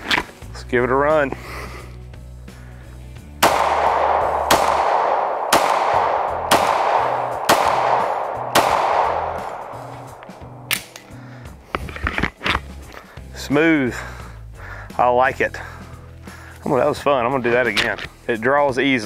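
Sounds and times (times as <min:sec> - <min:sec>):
pistol shots with echo: 0:03.4 - 0:11.1.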